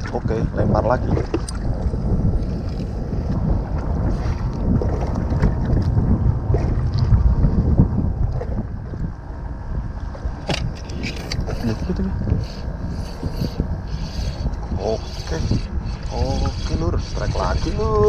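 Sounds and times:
sea water lapping around boat: 0.0s - 18.0s
wind rumbling on microphone: 0.0s - 18.0s.

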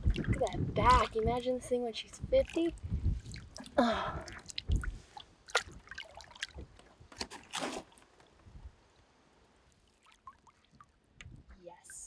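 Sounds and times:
water splashing beside a boat: 0.0s - 1.3s, 2.1s - 8.3s, 9.7s - 12.0s
water lapping: 2.0s - 6.7s.

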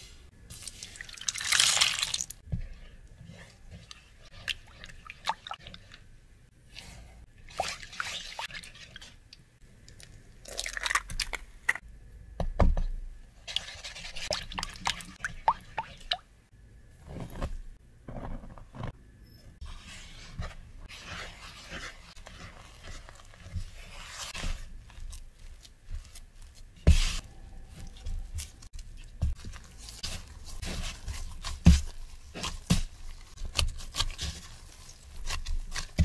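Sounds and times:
spatula stirring wet batter: 0.5s - 9.6s, 13.4s - 16.2s, 19.6s - 36.0s.

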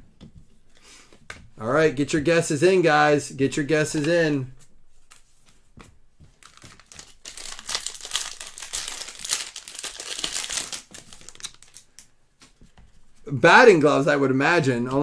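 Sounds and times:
foil wrapper crinkling and tearing: 6.4s - 12.0s.

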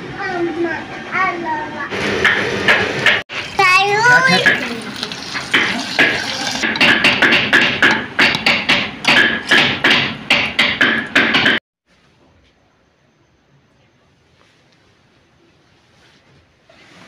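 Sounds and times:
hot oil sizzling: 3.3s - 6.9s.

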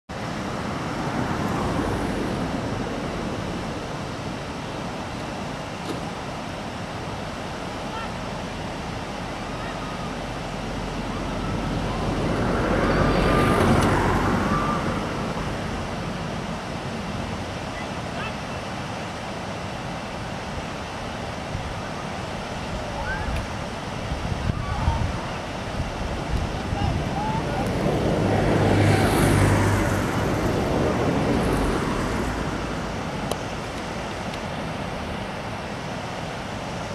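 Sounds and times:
river rapids rushing: 0.1s - 36.9s
distant voices calling out: 26.4s - 33.6s.

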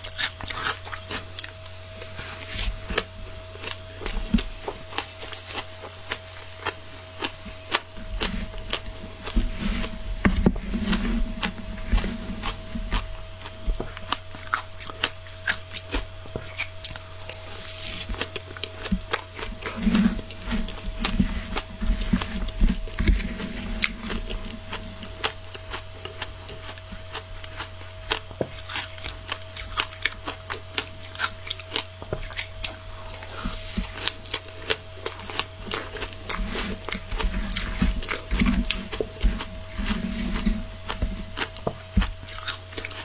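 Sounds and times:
faint steady hum: 0.0s - 43.0s
shaved ice crunching in mouth: 0.0s - 43.0s
metal spoon scraping plastic tub: 8.1s - 13.0s, 19.5s - 24.6s, 35.1s - 42.1s.

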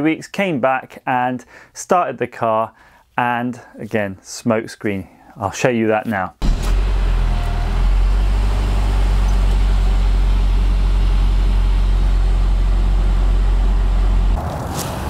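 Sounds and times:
car exhaust idling rumble: 6.4s - 14.4s.

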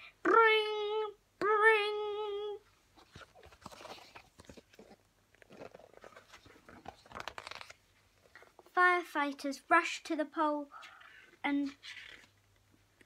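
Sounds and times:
book rustling and clicking: 3.0s - 8.7s, 11.6s - 12.7s.

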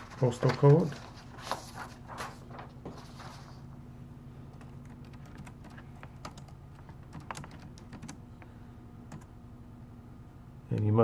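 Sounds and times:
low steady hum: 0.0s - 11.0s
keyboard typing clicks: 4.6s - 8.2s, 9.1s - 9.3s.

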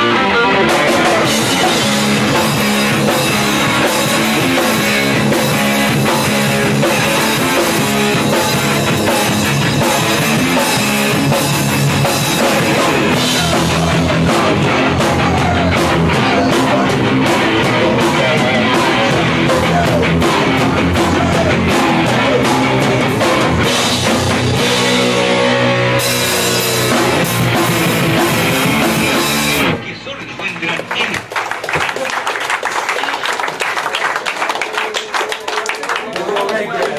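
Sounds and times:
pounding drum kit: 0.0s - 29.9s
bass guitar: 0.0s - 30.4s
distorted electric guitar: 0.0s - 30.9s.

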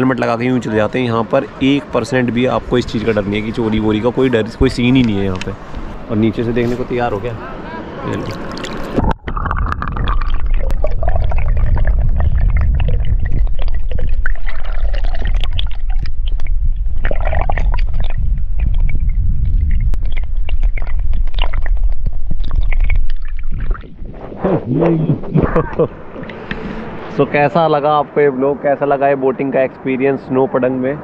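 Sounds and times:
bubbly pops and clicks: 8.2s - 24.0s
underwater gurgling rumble: 8.2s - 27.4s.

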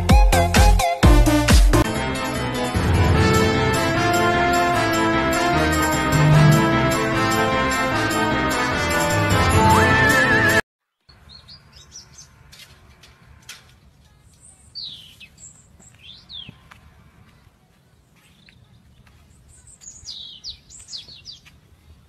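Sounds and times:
small birds chirping: 11.1s - 12.4s, 13.8s - 22.0s.

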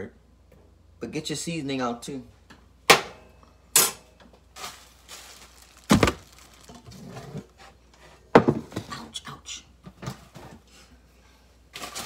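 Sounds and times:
objects knocking and thudding: 5.7s - 7.6s, 8.3s - 9.0s.

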